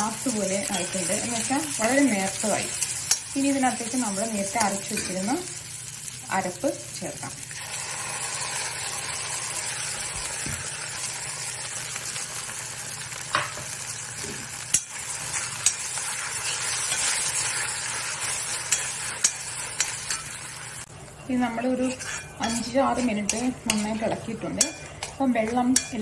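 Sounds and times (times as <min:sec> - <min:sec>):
onions sizzling in a pan: 0:00.0 - 0:26.0
metal spoon scraping a pan: 0:00.6 - 0:05.3, 0:14.2 - 0:26.0.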